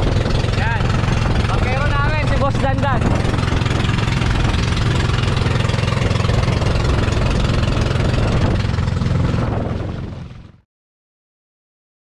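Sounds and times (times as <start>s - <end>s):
boat engine droning: 0.0s - 10.6s
water rushing from wake: 0.0s - 10.6s.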